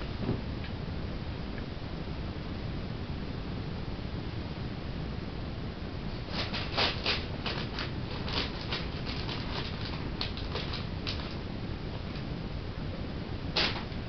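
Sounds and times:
steady low hum: 0:00.0 - 0:14.0
kitten claws clicking on tiles: 0:06.3 - 0:11.4.

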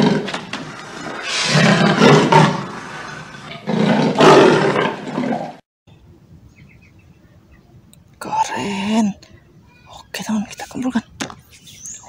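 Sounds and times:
big cat roaring: 0:00.0 - 0:05.6.

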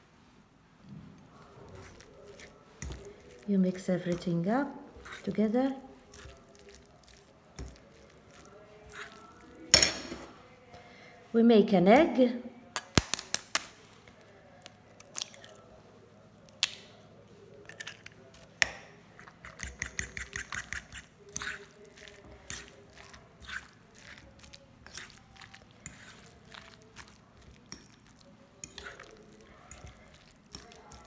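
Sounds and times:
quiet squishing of mash: 0:00.8 - 0:11.3, 0:12.6 - 0:31.0
fork tapping an egg: 0:19.4 - 0:21.6.

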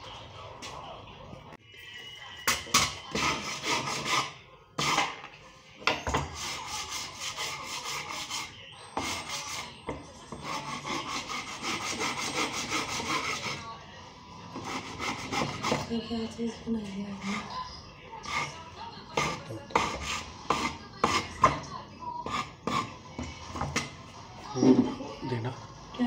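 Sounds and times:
hand-sanding wood: 0:03.2 - 0:05.0, 0:06.4 - 0:09.7, 0:10.4 - 0:13.6, 0:14.6 - 0:15.9.

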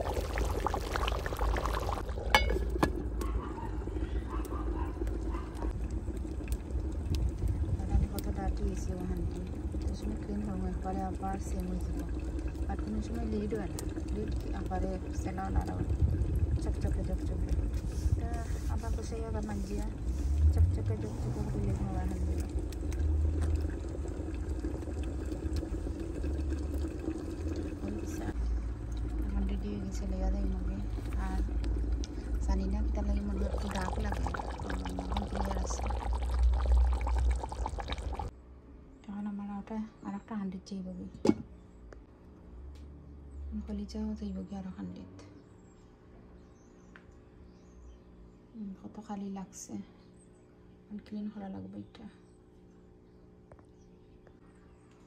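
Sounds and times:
fire popping and crackling: 0:00.0 - 0:03.3, 0:04.4 - 0:38.3
thick curry bubbling: 0:00.0 - 0:38.4
metal lid clanking on pot: 0:02.3 - 0:03.0.

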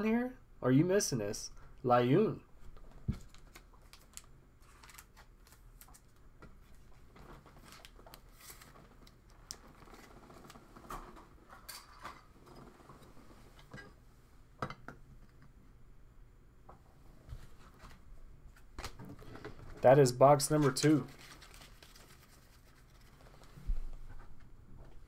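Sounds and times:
plastic packaging crinkling: 0:03.2 - 0:06.1, 0:21.0 - 0:23.4.

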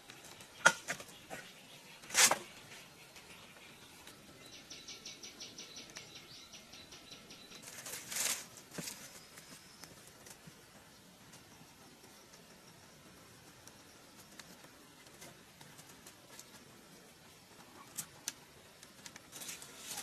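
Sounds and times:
bamboo scraping rustle: 0:00.4 - 0:02.9, 0:07.6 - 0:09.6, 0:19.0 - 0:20.0.

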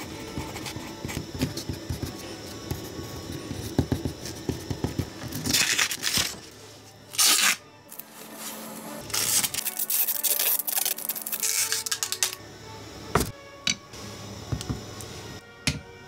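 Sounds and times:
adhesive tape ripping off roll: 0:05.4 - 0:06.4, 0:07.1 - 0:08.1, 0:09.0 - 0:12.4.

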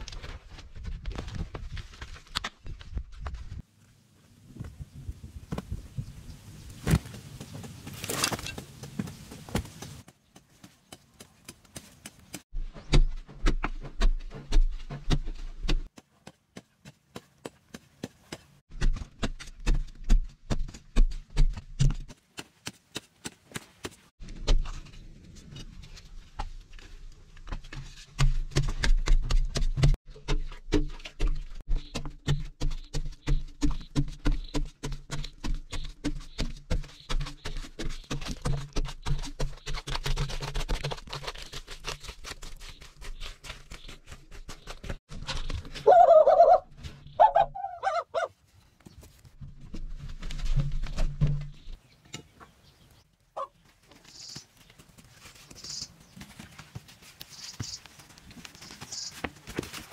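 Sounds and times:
footsteps on dry dirt: 0:53.4 - 0:59.9.

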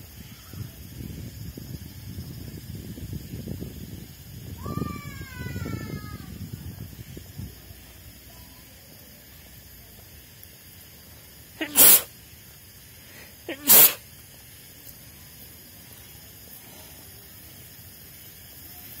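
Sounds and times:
person sneezing loudly: 0:11.6 - 0:12.1, 0:13.4 - 0:14.0.

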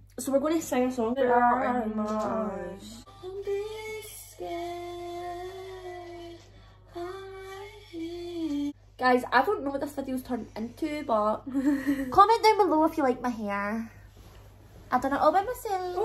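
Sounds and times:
women singing long held notes: 0:01.2 - 0:08.8.

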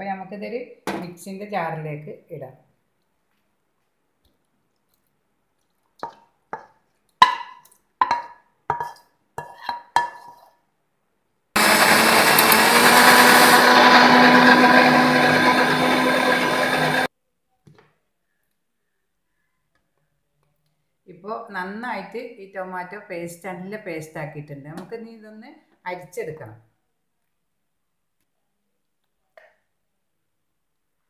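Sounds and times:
electric mixer grinder running: 0:11.6 - 0:17.1.

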